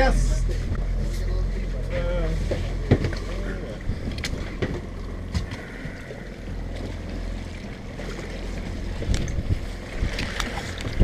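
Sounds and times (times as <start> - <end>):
steady low rumble: 0.0 - 11.0
wind buffeting microphone: 8.6 - 11.0.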